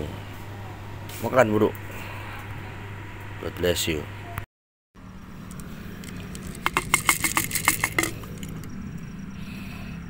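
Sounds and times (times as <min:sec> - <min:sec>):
steady low hum: 0:05.0 - 0:10.0
dry cat food rattling in a jar: 0:06.0 - 0:08.7.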